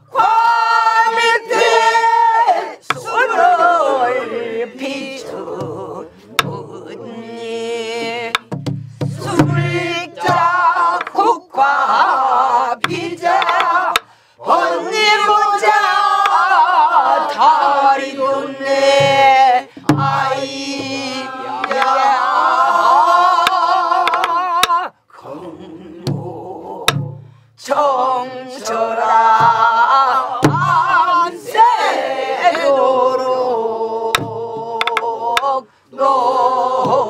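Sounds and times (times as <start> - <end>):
voices singing along: 0.0 - 37.0
barrel drum palm thumps: 8.0 - 11.1, 18.8 - 21.9, 26.9 - 27.3, 29.4 - 29.8, 30.4 - 31.0, 34.2 - 35.0
drum stick clicks: 12.8 - 14.1, 21.6 - 22.0, 23.4 - 24.8, 34.2 - 35.5.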